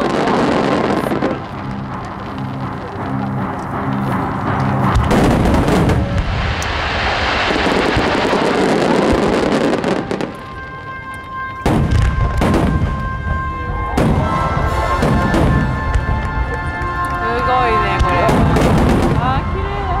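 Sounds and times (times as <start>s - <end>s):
sharp firework booms: 4.9s - 10.2s, 11.7s - 12.9s, 18.0s - 19.5s.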